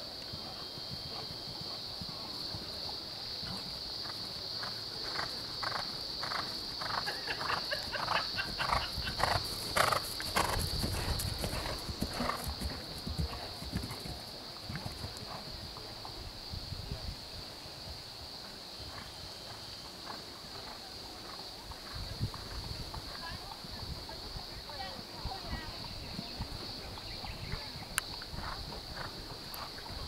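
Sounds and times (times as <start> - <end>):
horse hoofbeats on turf: 8.5 - 15.4.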